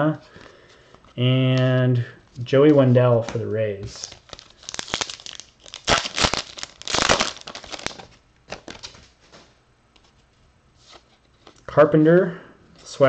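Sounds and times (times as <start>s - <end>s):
plastic wrapper crinkling and tearing: 3.2s - 9.0s.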